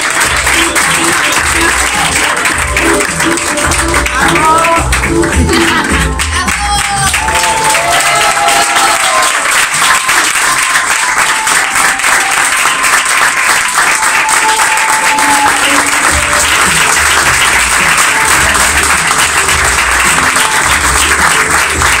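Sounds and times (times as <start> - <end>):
audience applauding: 0.0 - 22.0
low bass notes: 0.2 - 7.4, 16.1 - 22.0.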